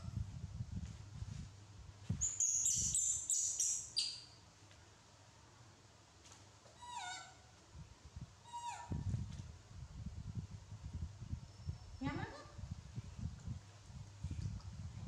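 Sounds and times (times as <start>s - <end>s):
high-pitched animal chirping: 2.2s - 4.2s.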